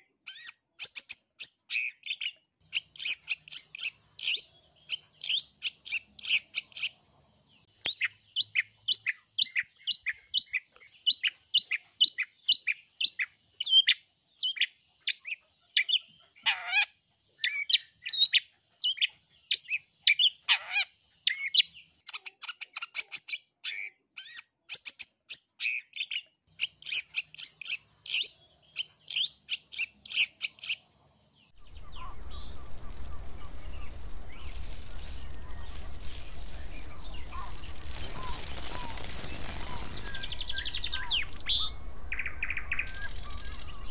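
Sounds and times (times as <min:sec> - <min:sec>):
steady hiss with low hum: 0:31.0 - 0:43.9
bird chirping harshly: 0:31.6 - 0:43.9.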